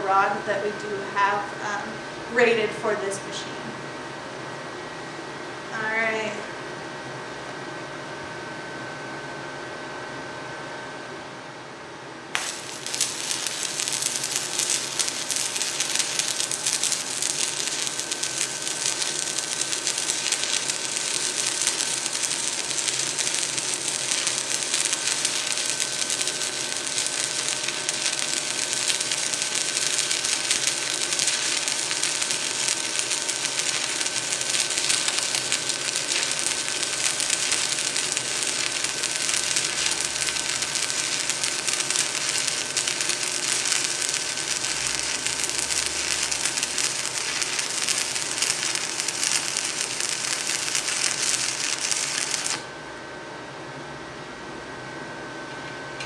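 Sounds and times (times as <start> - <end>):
welding arc crackling and hissing: 12.3 - 52.7.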